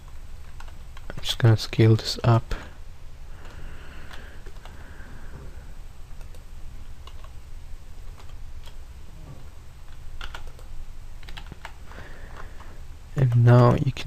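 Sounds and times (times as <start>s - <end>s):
low steady hum: 0.0s - 14.0s
keyboard and mouse clicks: 6.2s - 7.4s, 9.9s - 11.8s.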